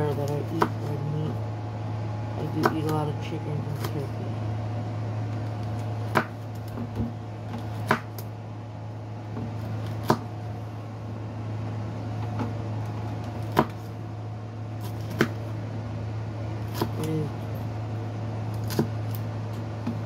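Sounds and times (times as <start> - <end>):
steady low hum: 0.0 - 20.0
knife chopping on wooden board: 0.5 - 0.9, 2.6 - 3.0, 6.1 - 8.2, 9.3 - 10.3, 13.4 - 13.9, 14.8 - 15.4, 18.6 - 19.0.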